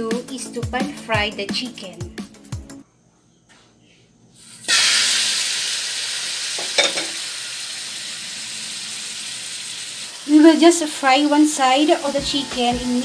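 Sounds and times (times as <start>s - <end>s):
chicken sizzling in hot oil: 4.4s - 13.0s.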